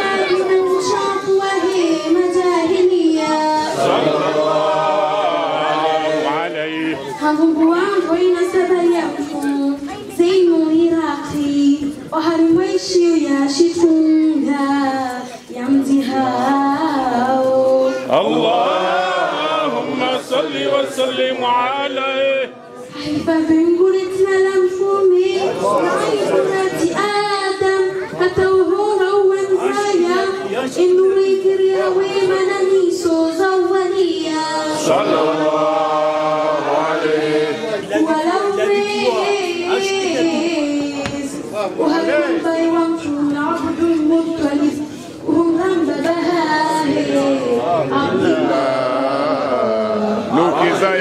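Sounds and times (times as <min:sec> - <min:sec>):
girl chanting into a microphone: 0:00.0 - 0:03.9, 0:07.0 - 0:18.3, 0:22.8 - 0:34.9, 0:38.2 - 0:48.4
person chanting religious recitation: 0:15.9 - 0:22.6, 0:29.0 - 0:41.2, 0:44.6 - 0:51.0.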